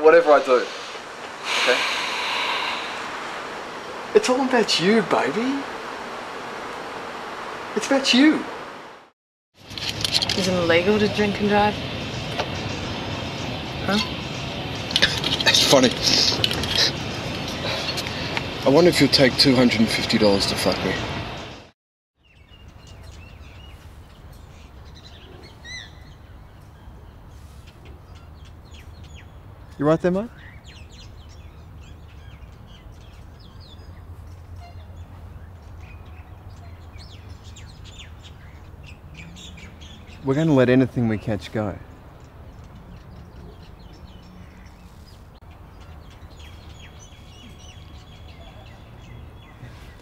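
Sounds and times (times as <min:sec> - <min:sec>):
birds chirping and calling: 0:00.3 - 0:04.9, 0:09.6 - 0:21.4, 0:22.2 - 0:50.0
loud arching bird call: 0:01.4 - 0:03.4.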